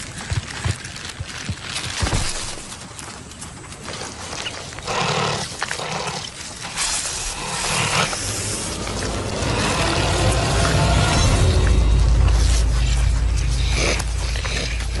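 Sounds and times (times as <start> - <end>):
honey badger growling and hissing: 4.8 - 15.0.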